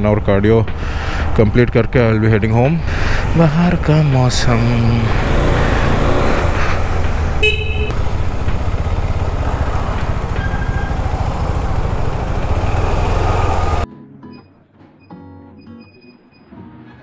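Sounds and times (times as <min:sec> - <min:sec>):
road travel rumble: 0:00.0 - 0:13.9
vehicle horn honk: 0:07.4 - 0:08.0.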